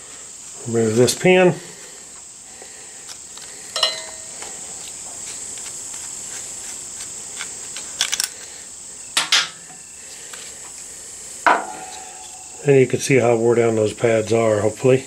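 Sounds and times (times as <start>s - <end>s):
steady high-pitched tone: 3.8s - 4.7s, 11.5s - 13.5s.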